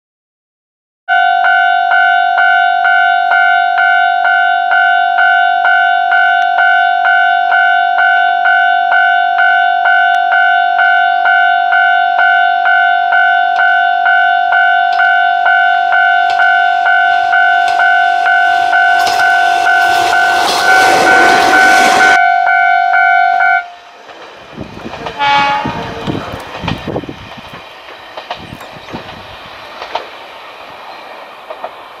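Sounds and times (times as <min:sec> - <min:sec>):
level crossing bell ringing: 0:01.1 - 0:23.7
diesel railcar passing: 0:01.1 - 0:32.0
train wheels clacking over rail joints: 0:16.2 - 0:22.1, 0:24.0 - 0:32.0.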